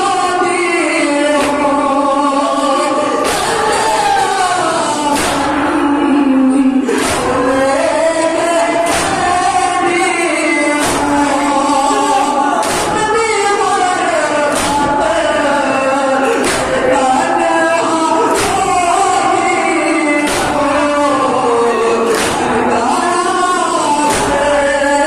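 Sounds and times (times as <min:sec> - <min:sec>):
men chanting in chorus: 0:00.0 - 0:25.0
chest-beating slaps: 0:01.4 - 0:01.8, 0:03.2 - 0:04.0, 0:05.1 - 0:06.0, 0:06.9 - 0:07.7, 0:08.8 - 0:09.6, 0:10.8 - 0:11.8, 0:12.6 - 0:13.2, 0:14.5 - 0:15.3, 0:16.3 - 0:17.1, 0:18.3 - 0:19.3, 0:20.2 - 0:20.9, 0:22.0 - 0:22.8, 0:24.1 - 0:24.6.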